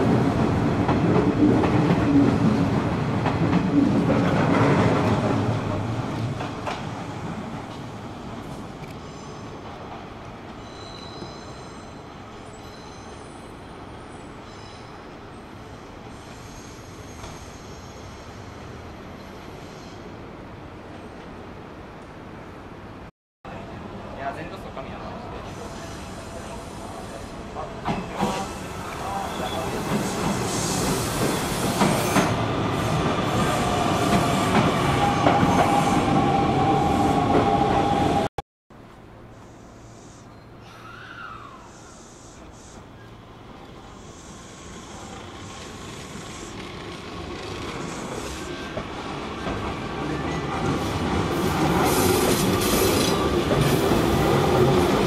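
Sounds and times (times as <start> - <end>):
electric train rumbling: 0.0 - 38.3, 39.1 - 55.0
faint high-pitched squeal: 10.6 - 18.6, 39.3 - 43.2.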